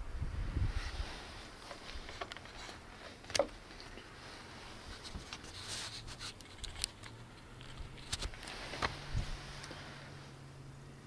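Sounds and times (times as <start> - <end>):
faint handling clicks and rustles: 0.8 - 10.4.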